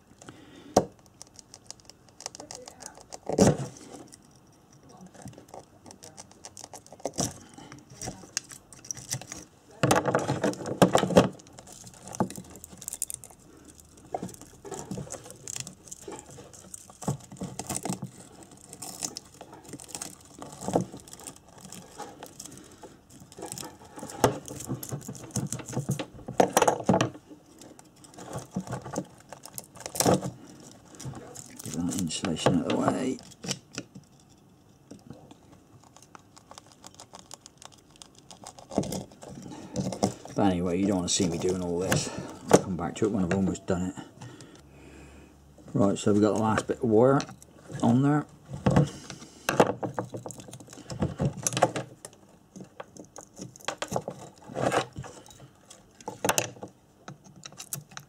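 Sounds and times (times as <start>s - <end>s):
loose wire rustling: 1.0s - 43.7s.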